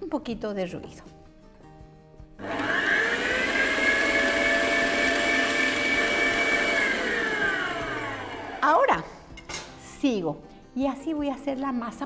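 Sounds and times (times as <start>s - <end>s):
electric stand mixer running: 2.4s - 8.8s.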